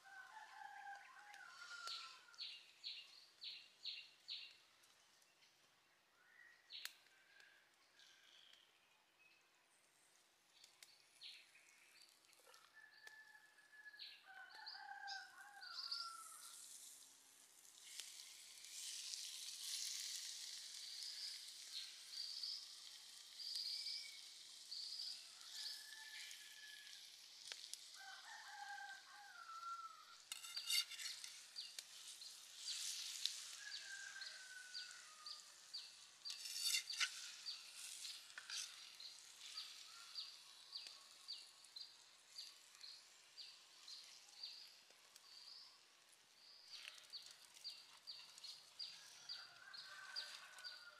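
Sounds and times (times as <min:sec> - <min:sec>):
food sizzling faintly: 0:14.7 - 0:50.9.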